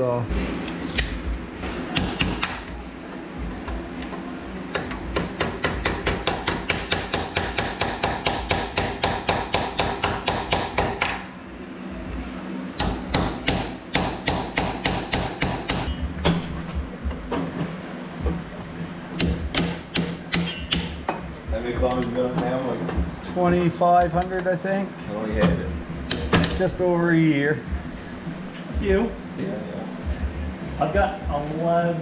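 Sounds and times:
hammer tapping on metal: 0:01.9 - 0:02.7, 0:04.7 - 0:11.3, 0:12.8 - 0:16.5, 0:19.2 - 0:23.1, 0:26.1 - 0:26.7.

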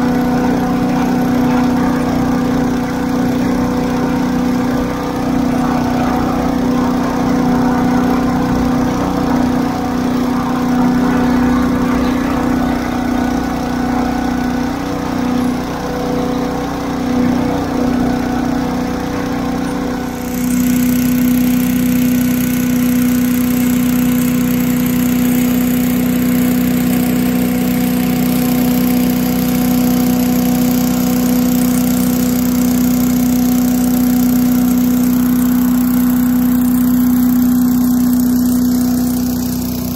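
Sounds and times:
leaf blower engine running: 0:00.0 - 0:39.9
tractor engine: 0:00.0 - 0:39.9.

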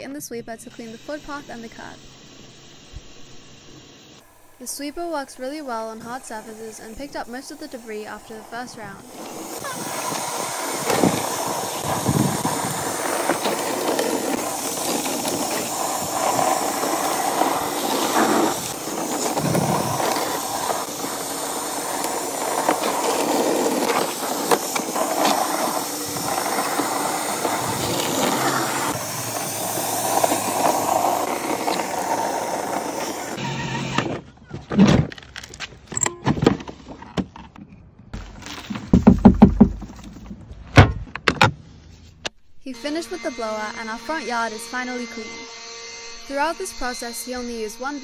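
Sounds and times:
powered sweeper brushing concrete: 0:00.7 - 0:01.9, 0:03.7 - 0:34.1, 0:42.8 - 0:45.5, 0:46.1 - 0:48.0.

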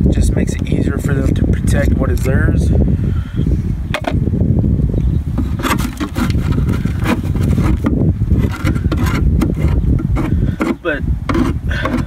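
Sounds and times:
wood scraping and knocking: 0:03.9 - 0:04.3, 0:05.3 - 0:12.0.

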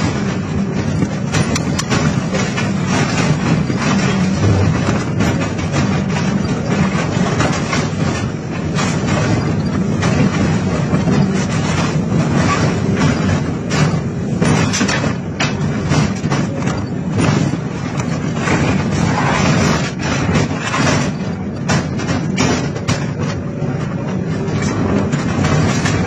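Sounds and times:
excavator engine running: 0:00.0 - 0:26.0.

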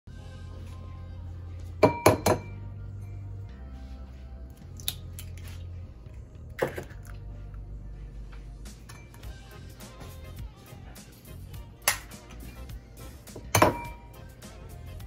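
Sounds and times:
background music: 0:00.1 - 0:15.0
egg cracking on bowl rim: 0:04.8 - 0:05.6.

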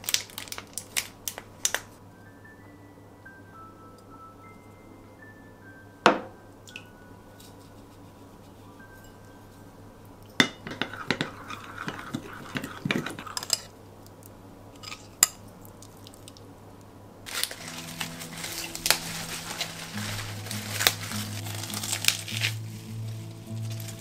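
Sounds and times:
soft background music: 0:02.0 - 0:13.3, 0:17.3 - 0:24.0
metal spoon clinking glass bowl: 0:10.3 - 0:13.7
lettuce leaves tearing: 0:17.3 - 0:24.0.

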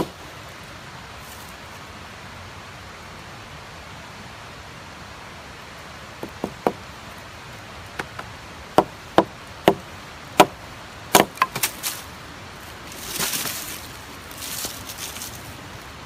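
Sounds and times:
hatchet chopping wood: 0:06.2 - 0:06.8, 0:08.0 - 0:11.8.

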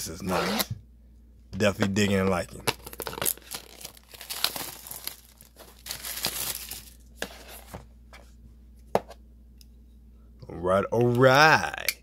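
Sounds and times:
plastic wrap tearing and crinkling: 0:02.7 - 0:07.6.

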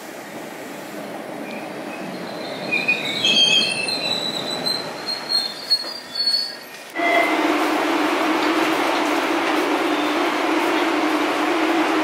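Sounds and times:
subway train rumbling: 0:00.0 - 0:12.0
metallic brake squeal: 0:02.3 - 0:06.7.

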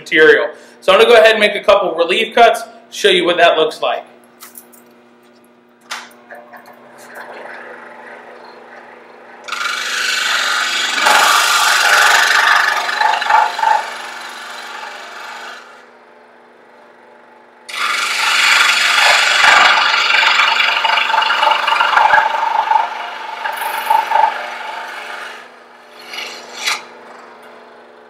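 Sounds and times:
saw motor humming: 0:06.3 - 0:16.0, 0:17.7 - 0:28.0
scroll saw blade cutting wood: 0:07.1 - 0:15.9, 0:17.7 - 0:27.4.

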